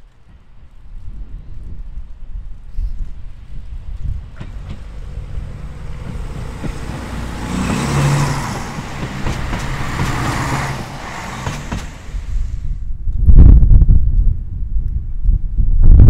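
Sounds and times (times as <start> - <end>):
train wheels rumbling on track: 3.0 - 12.8
train engine humming: 3.1 - 12.8
wheel clicks on rails: 4.0 - 12.4.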